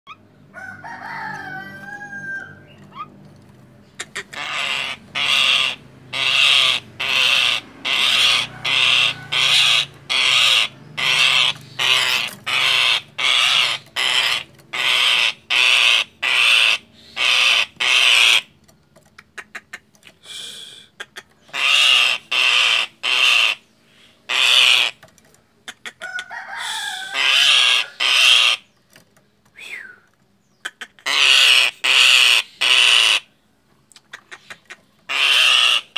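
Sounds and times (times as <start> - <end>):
myna harsh alarm calls: 3.9 - 18.6, 21.0 - 25.0, 25.7 - 28.7, 30.6 - 33.3, 34.2 - 35.9.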